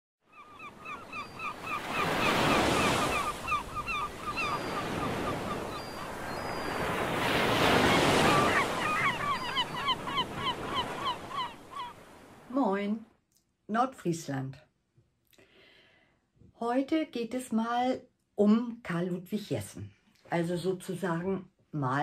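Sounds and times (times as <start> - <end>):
birds calling: 0.2 - 12.5.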